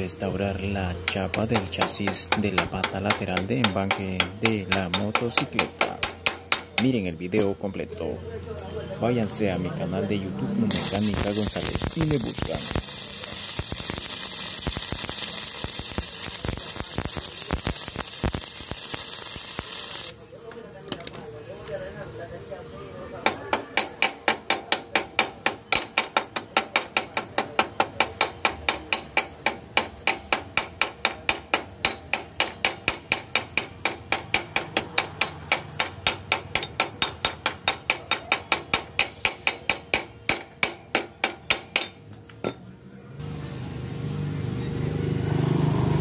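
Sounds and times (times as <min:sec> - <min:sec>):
hammer tapping on steel: 0:01.0 - 0:07.0, 0:23.2 - 0:42.6.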